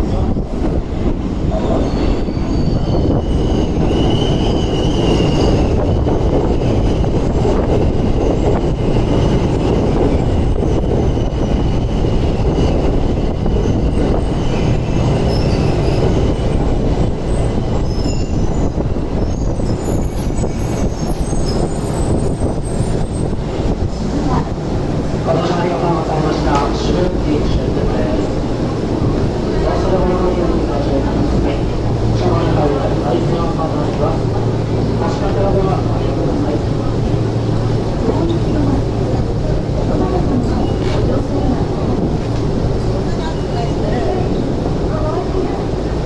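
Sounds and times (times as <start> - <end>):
subway train rumbling: 0.0 - 46.0
high brake squeal: 1.5 - 6.0, 17.3 - 23.3.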